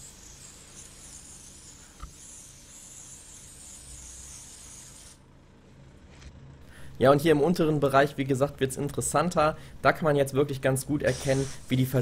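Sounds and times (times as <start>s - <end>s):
hose nozzle spraying water: 11.1s - 11.8s.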